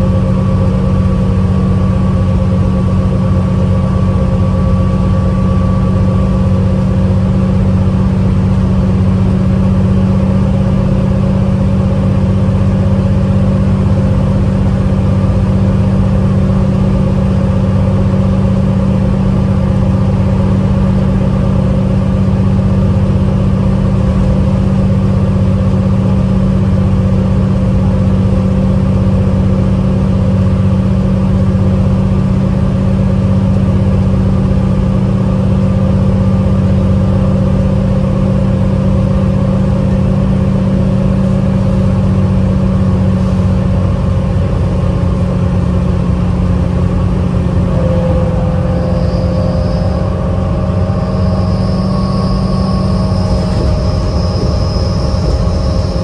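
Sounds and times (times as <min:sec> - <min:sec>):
bus engine drone: 0:00.0 - 0:56.0
faint steady whine: 0:00.0 - 0:56.0
road noise: 0:41.3 - 0:56.0.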